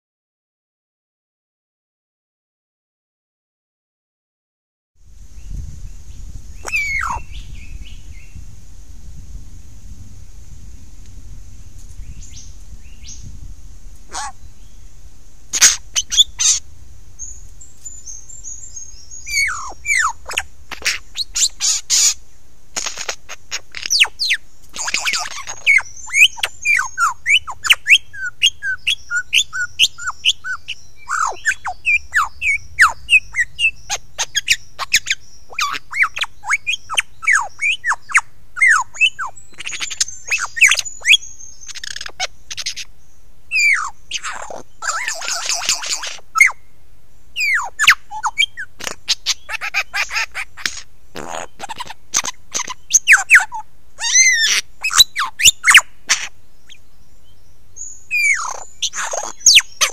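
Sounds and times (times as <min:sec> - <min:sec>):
lyrebird singing: 0:06.5 - 0:08.4, 0:14.1 - 0:14.8, 0:15.5 - 0:16.6, 0:17.2 - 0:22.2, 0:22.8 - 0:46.6, 0:47.4 - 0:59.9.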